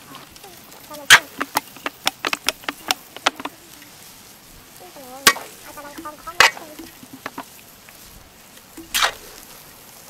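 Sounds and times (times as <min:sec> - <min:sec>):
noodles sizzling in wok: 0:00.0 - 0:10.0
metal spatula scraping wok: 0:05.2 - 0:07.5.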